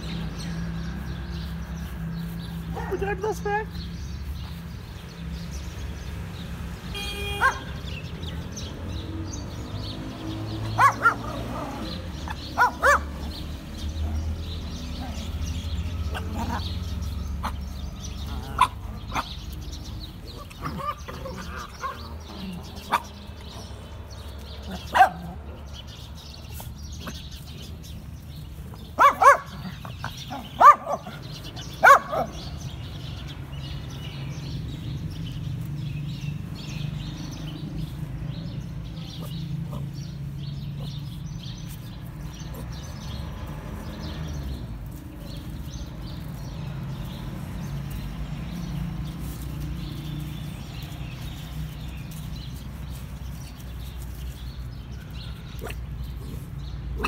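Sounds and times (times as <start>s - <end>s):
small dog barking: 7.3s - 7.7s, 10.7s - 13.2s, 24.8s - 25.4s, 29.0s - 32.5s.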